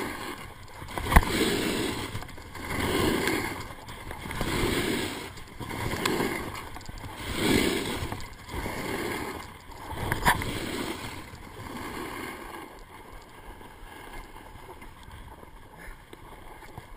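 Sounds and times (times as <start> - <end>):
snowboard scraping on snow: 1.1 - 3.6, 4.3 - 12.7.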